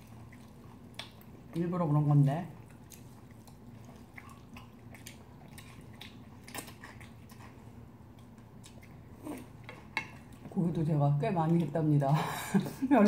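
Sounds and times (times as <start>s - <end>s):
chewing and slurping noodles: 2.6s - 10.5s.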